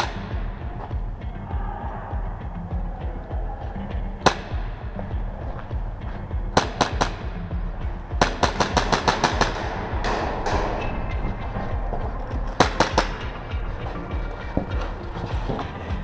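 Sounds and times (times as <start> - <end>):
airsoft gunshots: 0.0 - 0.5, 4.2 - 5.0, 6.5 - 10.8, 12.5 - 13.6.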